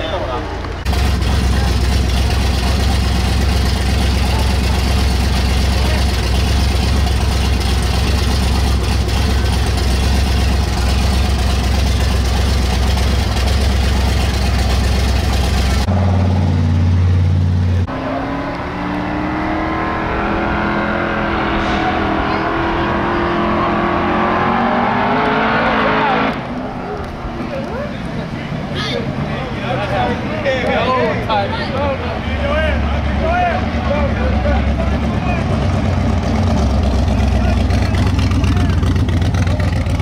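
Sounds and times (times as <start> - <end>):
race car engine idling: 0.0 - 17.9, 26.6 - 40.0
engine hum: 0.0 - 40.0
car engine accelerating: 0.5 - 40.0.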